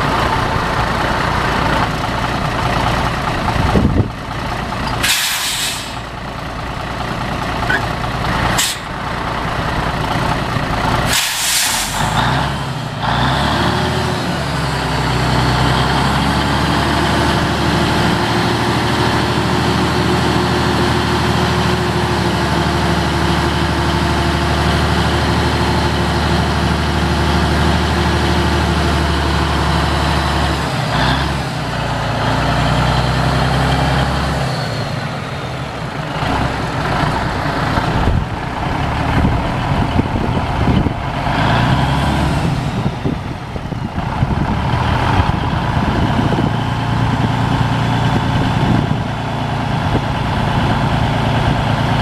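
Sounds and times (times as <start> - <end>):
engine knocks: 0.0 - 5.1
diesel truck engine running: 0.0 - 52.0.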